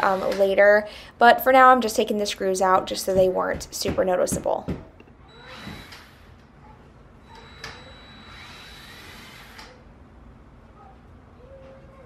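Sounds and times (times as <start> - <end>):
cordless drill whining: 5.3 - 6.4, 7.2 - 9.8.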